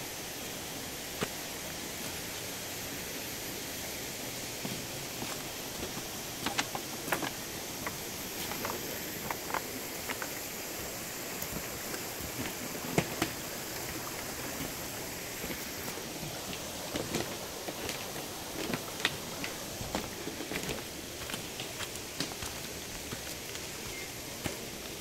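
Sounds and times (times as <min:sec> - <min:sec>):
shallow stream rushing: 0:00.0 - 0:25.0
footsteps on bamboo footbridge: 0:04.6 - 0:10.5, 0:11.4 - 0:25.0.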